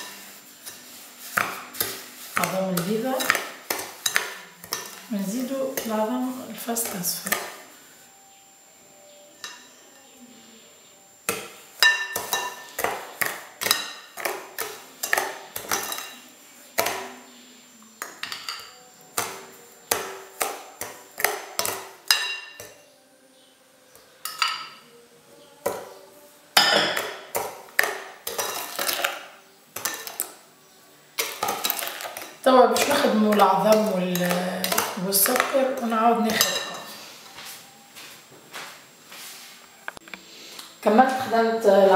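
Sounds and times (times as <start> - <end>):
metal spoon clinking on ceramic bowls: 0.0 - 5.1, 9.4 - 9.8, 11.8 - 17.1, 18.0 - 22.8, 24.2 - 24.9, 26.6 - 29.2, 29.8 - 30.3, 31.2 - 36.9.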